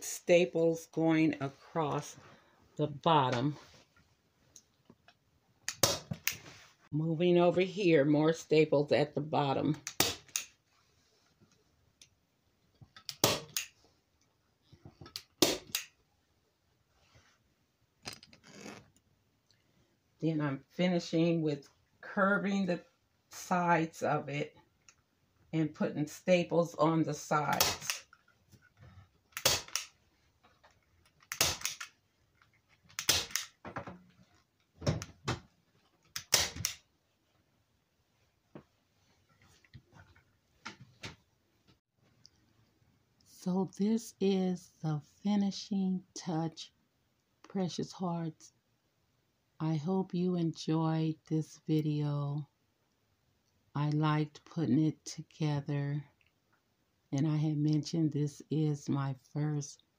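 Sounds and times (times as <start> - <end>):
staple gun snaps: 15.4 - 15.9, 29.4 - 29.9, 31.3 - 31.9, 33.0 - 33.5, 36.1 - 36.8.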